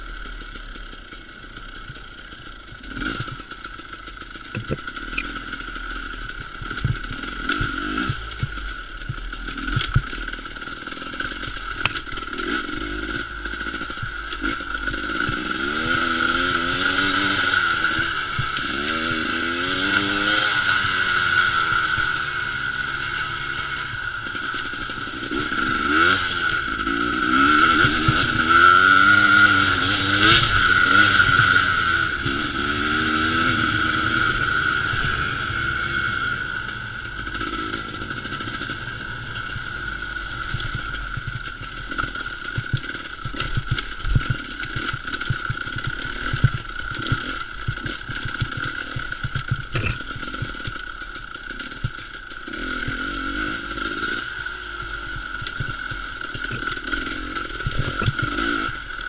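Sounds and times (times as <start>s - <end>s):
motorcycle engine revving: 0.0s - 59.0s
rocks and chassis knocking: 2.9s - 5.4s, 6.3s - 15.9s, 37.2s - 53.1s, 54.8s - 58.6s.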